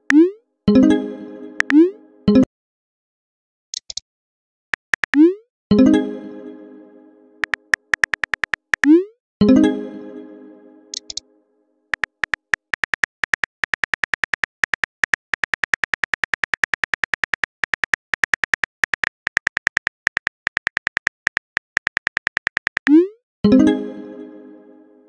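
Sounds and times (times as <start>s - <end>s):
phone keyboard clicks: 4.8s - 5.2s, 7.4s - 8.9s, 11.0s - 11.2s, 11.9s - 22.9s.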